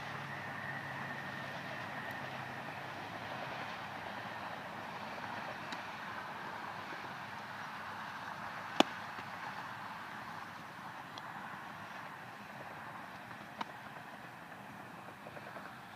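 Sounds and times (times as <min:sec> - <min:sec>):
outdoor background noise: 0:00.0 - 0:15.9
baseball smacking into glove: 0:08.8 - 0:09.0.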